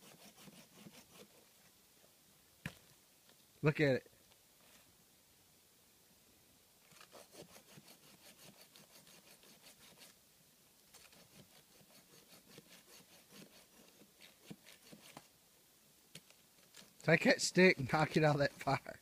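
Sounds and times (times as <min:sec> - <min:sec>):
hand saw cutting log: 0:00.0 - 0:01.4, 0:06.9 - 0:10.2, 0:10.9 - 0:15.3, 0:17.6 - 0:18.8.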